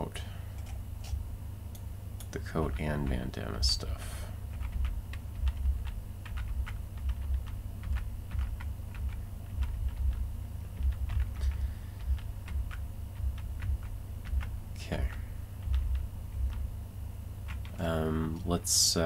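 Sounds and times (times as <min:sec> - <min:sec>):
low hum: 0:00.0 - 0:19.0
keyboard keys clicking: 0:04.5 - 0:16.6, 0:17.5 - 0:17.8.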